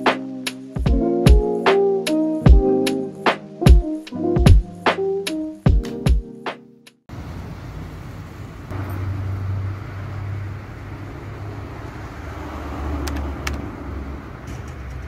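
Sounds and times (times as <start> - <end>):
road traffic rumble: 7.1 - 15.0.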